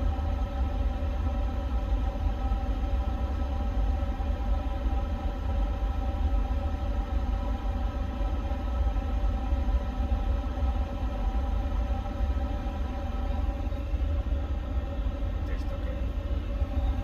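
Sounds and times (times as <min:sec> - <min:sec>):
cockpit hum: 0:09.7 - 0:17.0.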